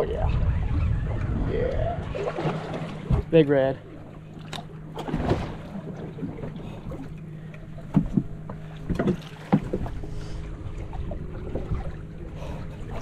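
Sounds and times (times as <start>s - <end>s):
low hum: 0.0s - 13.0s
water sloshing against boat hull: 0.0s - 13.0s
knocks on boat: 7.9s - 10.0s.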